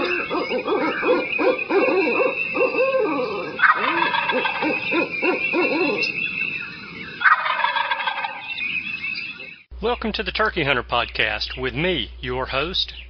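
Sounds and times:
turkey gobbling: 0.0s - 6.4s, 7.0s - 8.6s
short repeated bird calls: 0.0s - 9.7s.

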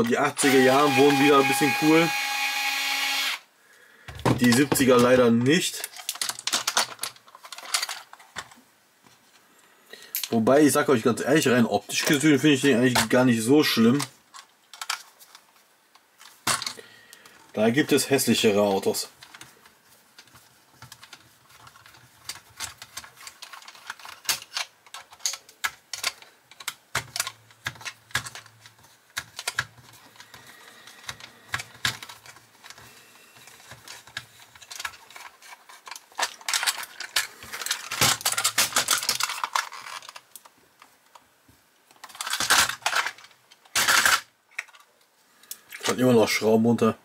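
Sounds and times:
model car parts clicking: 5.8s - 8.6s, 13.9s - 16.8s, 20.2s - 41.2s, 41.9s - 45.8s
rubbing and clicking: 19.2s - 41.3s.

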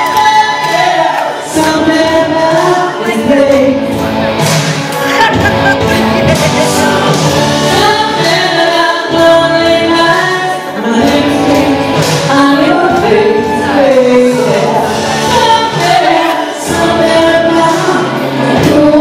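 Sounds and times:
person singing into a microphone: 0.0s - 4.0s, 5.2s - 19.0s
musical accompaniment: 0.0s - 19.0s.

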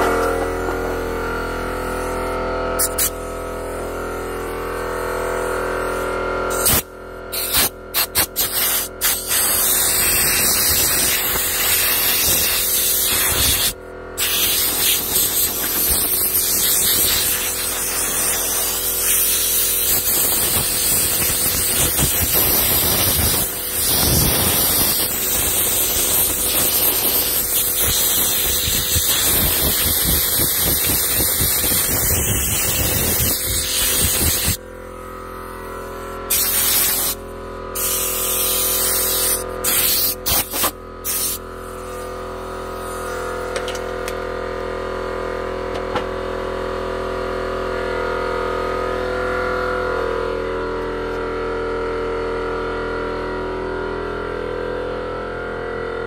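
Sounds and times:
carving tool rushing hiss: 2.8s - 34.6s, 35.8s - 37.2s, 37.8s - 42.1s.

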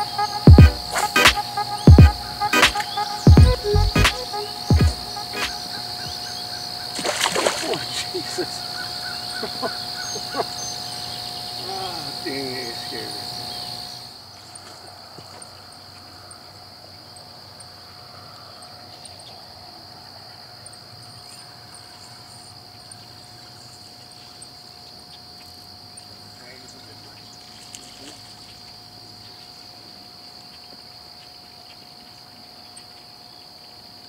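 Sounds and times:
short calls and clicks: 0.0s - 10.5s
high-pitched insect chorus buzz: 0.0s - 34.0s.

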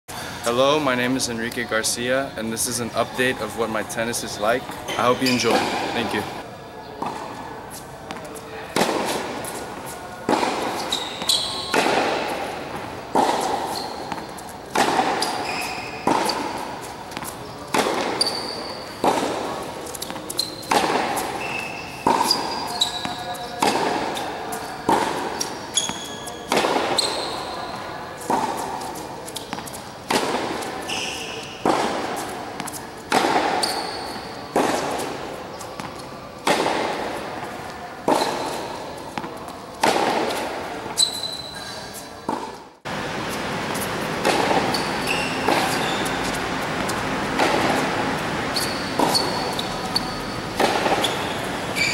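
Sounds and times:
shoe squeaks: 2.7s - 6.4s, 7.1s - 12.3s, 13.2s - 29.9s, 30.6s - 36.3s, 38.1s - 39.5s, 40.8s - 42.5s, 44.4s - 47.6s, 48.5s - 51.9s
tennis racquets hitting ball: 4.7s - 6.4s, 7.0s - 51.9s.

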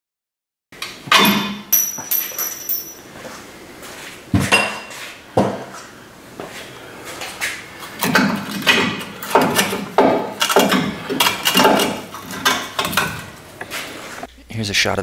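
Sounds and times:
metal tools clinking: 1.1s - 3.1s, 8.0s - 13.3s.

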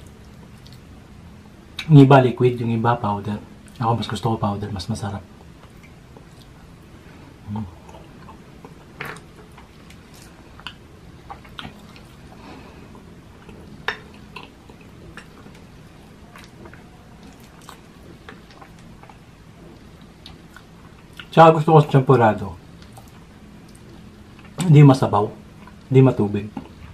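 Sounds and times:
chewing and wet mouth sounds: 0.0s - 0.9s, 5.4s - 6.8s, 7.8s - 21.4s, 22.7s - 24.6s, 25.5s - 25.9s.

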